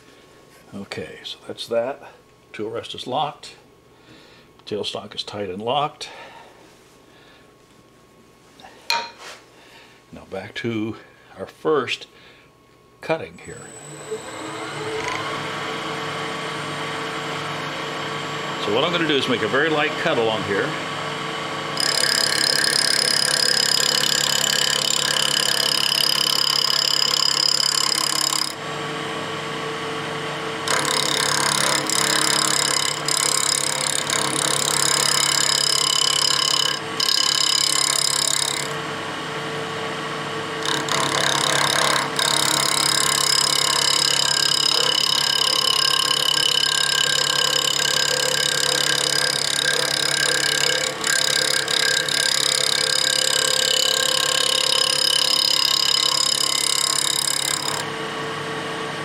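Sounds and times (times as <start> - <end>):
wood lathe running hum: 13.4 - 59.0
gouge cutting wood: 21.7 - 28.6, 30.0 - 38.8, 40.1 - 57.9.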